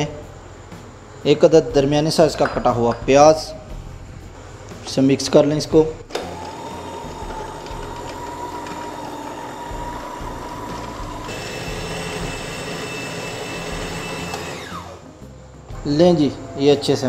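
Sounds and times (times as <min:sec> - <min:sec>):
food processor whirring: 0:06.1 - 0:15.0.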